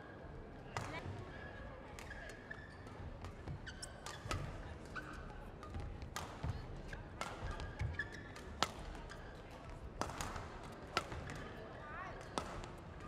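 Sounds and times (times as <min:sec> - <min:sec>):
racket striking shuttlecock: 0:06.2 - 0:06.5, 0:10.0 - 0:11.4, 0:12.4 - 0:12.7.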